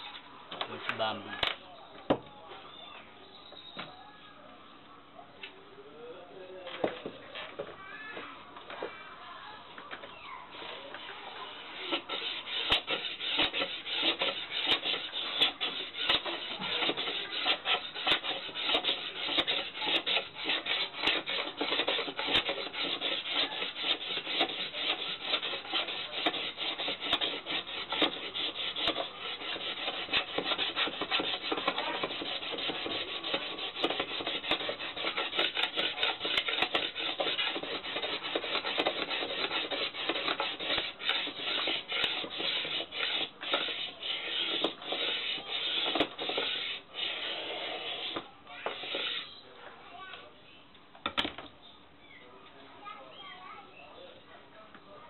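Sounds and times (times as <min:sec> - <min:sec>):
blade scraping bamboo pole: 0:11.6 - 0:49.4.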